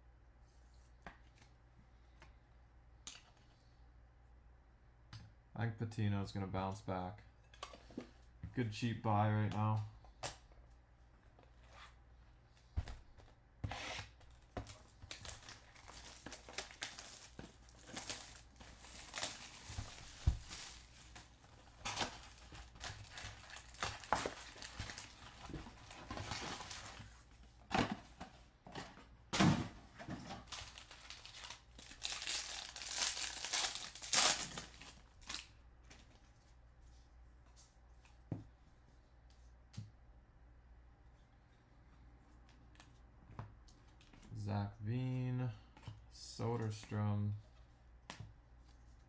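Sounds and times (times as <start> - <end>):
foil wrappers tearing and crinkling: 15.1 - 27.0, 30.4 - 35.5.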